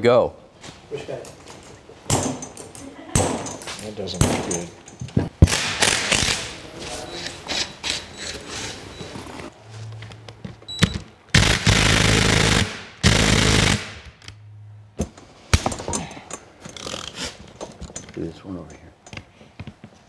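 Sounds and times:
impact driver hammering bursts: 0:05.4 - 0:06.5, 0:11.3 - 0:14.1
tools and parts clicking: 0:15.0 - 0:19.3.

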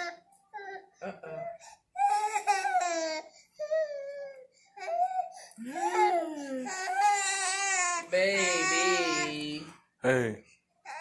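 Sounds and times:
baby crying: 0:02.0 - 0:09.6.

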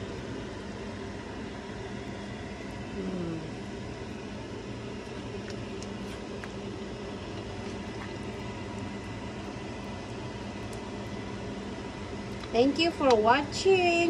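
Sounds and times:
fan humming: 0:00.0 - 0:14.0
person humming: 0:03.0 - 0:03.6.

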